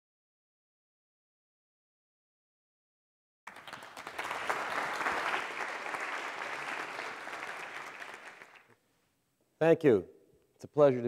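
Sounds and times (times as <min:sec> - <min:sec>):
audience applauding: 0:03.5 - 0:08.7.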